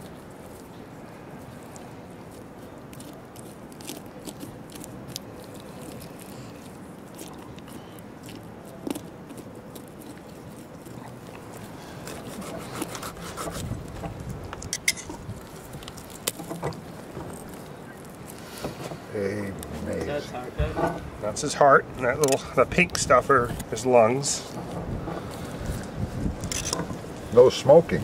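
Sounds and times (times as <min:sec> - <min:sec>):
knife cracking through ribs: 0:01.6 - 0:18.7.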